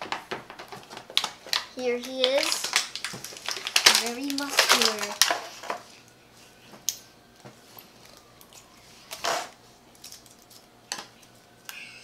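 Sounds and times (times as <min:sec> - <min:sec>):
plastic packaging rustle: 0:00.0 - 0:06.9.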